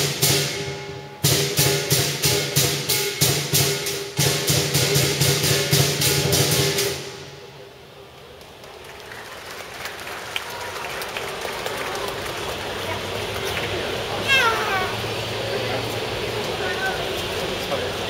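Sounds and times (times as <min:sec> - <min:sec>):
gong: 0:00.0 - 0:07.1
big drum beating: 0:00.0 - 0:07.3
cymbals clashing: 0:00.0 - 0:07.5.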